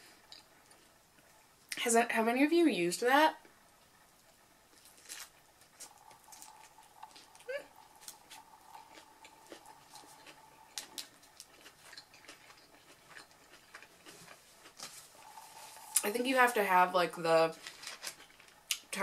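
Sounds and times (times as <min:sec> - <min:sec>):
chewing and mouth clicks: 0:04.7 - 0:16.1
faint steady tone: 0:05.5 - 0:13.4, 0:14.6 - 0:18.0
paper wrapper crinkling: 0:17.5 - 0:18.6.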